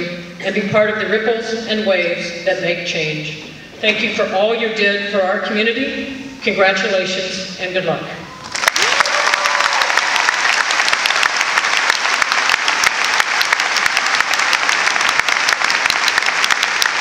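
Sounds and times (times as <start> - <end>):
crowd applauding: 8.4 - 17.0.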